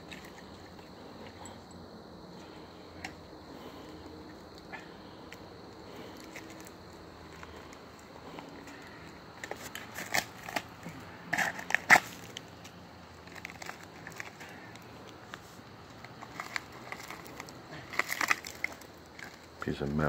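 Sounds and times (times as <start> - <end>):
dirt and debris crunching: 5.8 - 20.0.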